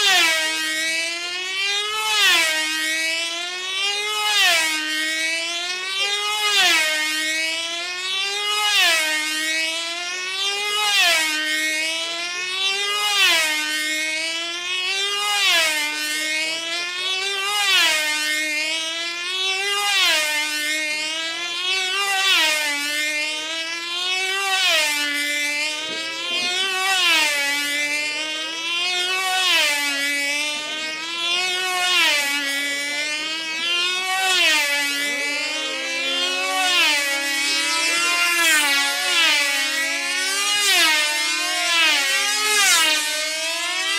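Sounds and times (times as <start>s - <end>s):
model plane engine screaming: 0.0s - 43.9s.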